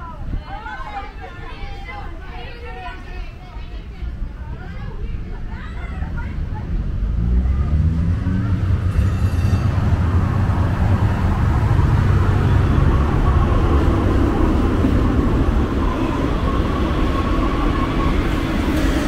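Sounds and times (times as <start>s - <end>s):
light-rail train rumbling: 0.0s - 19.0s
train whine: 8.0s - 19.0s.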